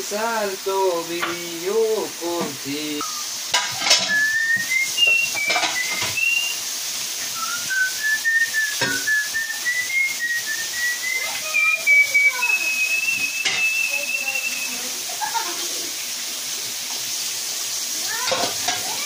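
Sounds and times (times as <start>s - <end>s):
potatoes sizzling in hot oil: 0.0s - 19.0s
person whistling a tune: 4.0s - 6.6s, 7.3s - 14.9s.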